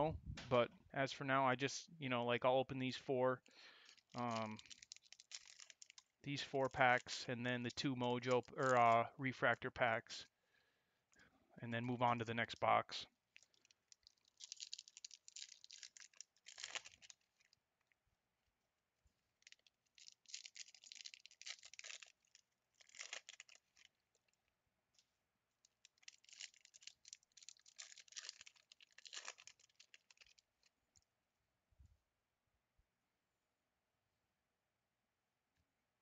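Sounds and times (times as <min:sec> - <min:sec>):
plastic wrapping crinkling and tearing: 0:03.8 - 0:06.9, 0:13.3 - 0:17.6, 0:19.4 - 0:24.4, 0:25.7 - 0:30.7.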